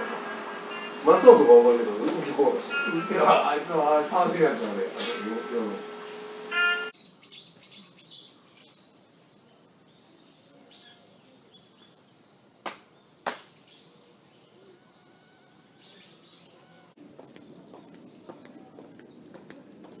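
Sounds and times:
faint birdsong: 0:00.0 - 0:20.0
sharp hand claps: 0:12.6 - 0:13.6.

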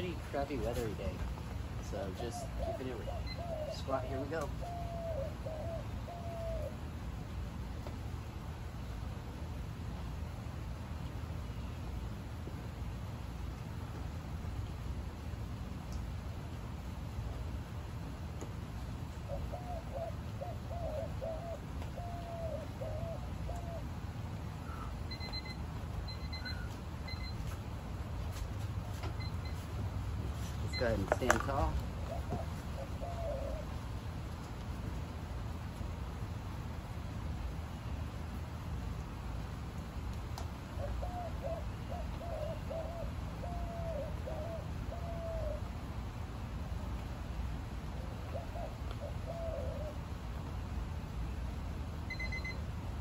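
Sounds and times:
bird calling low notes: 0:01.8 - 0:06.8, 0:19.3 - 0:27.4, 0:30.6 - 0:33.9
faint high-pitched beeps: 0:24.8 - 0:27.5, 0:52.0 - 0:52.7.

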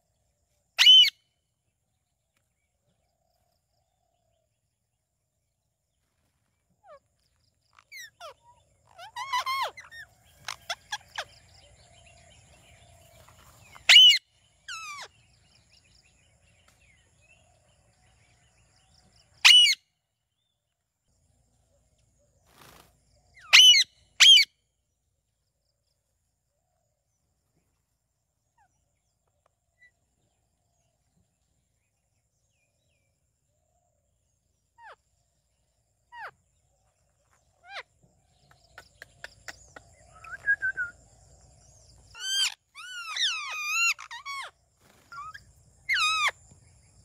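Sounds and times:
parakeets calling: 0:00.8 - 0:01.1, 0:07.7 - 0:11.9, 0:13.0 - 0:15.7, 0:19.4 - 0:19.8, 0:23.4 - 0:24.5, 0:41.8 - 0:46.4.

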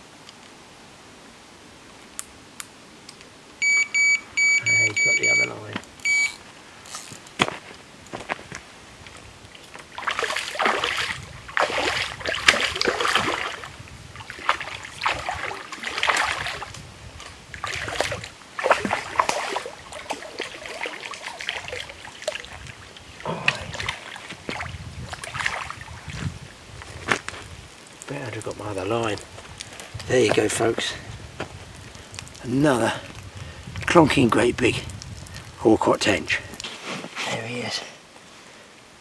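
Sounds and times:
fish splashing in water: 0:09.9 - 0:16.7, 0:17.6 - 0:26.2.

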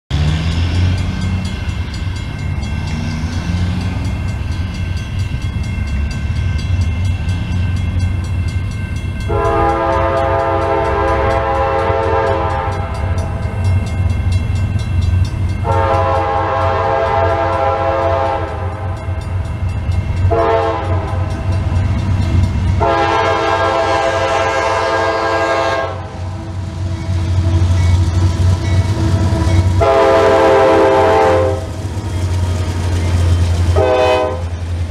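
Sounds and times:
train rumble: 0:00.1 - 0:34.9
locomotive air horn blasts: 0:09.3 - 0:13.2, 0:15.6 - 0:19.0, 0:20.3 - 0:21.5, 0:22.8 - 0:27.7, 0:29.1 - 0:31.8, 0:33.6 - 0:34.6.

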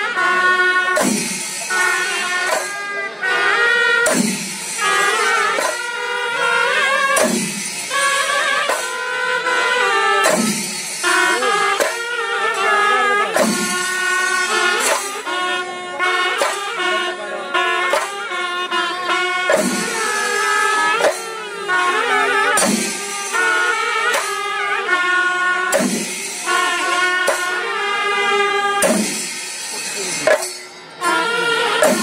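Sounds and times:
drums beaten with sticks: 0:00.4 - 0:32.0
double-reed pipe playing: 0:11.0 - 0:28.9, 0:30.2 - 0:32.0.

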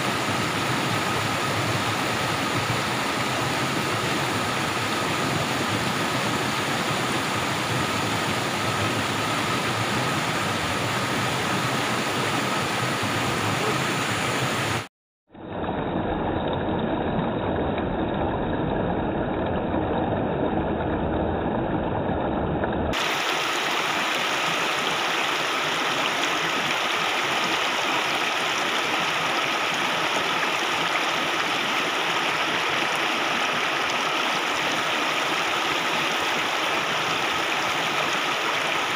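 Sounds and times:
stream rushing over rocks: 0:00.0 - 0:14.9, 0:23.0 - 0:38.9.

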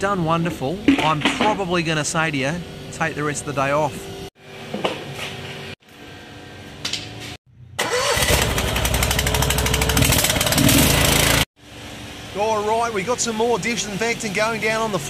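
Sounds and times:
small petrol engine running: 0:07.8 - 0:11.5.

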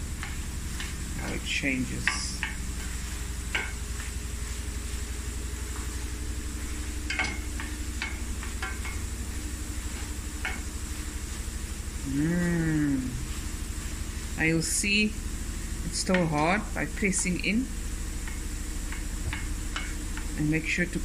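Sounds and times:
steady low hum: 0:00.0 - 0:21.0
wooden spoon stirring apples: 0:00.0 - 0:21.0
spoon knocking on pan: 0:02.1 - 0:04.1, 0:07.0 - 0:09.2, 0:09.8 - 0:10.8.

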